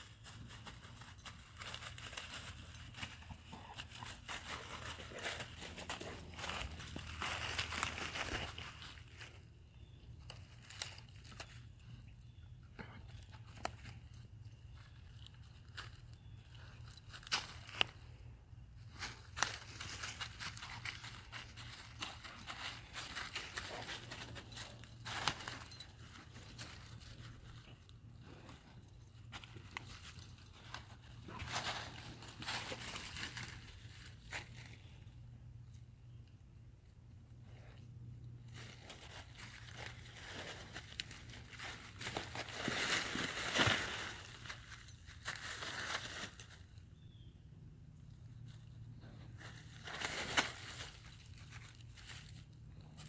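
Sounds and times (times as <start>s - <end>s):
footsteps crunching dry leaves: 0.0s - 9.4s, 18.8s - 27.6s, 29.9s - 35.0s, 38.6s - 46.8s, 49.2s - 53.0s.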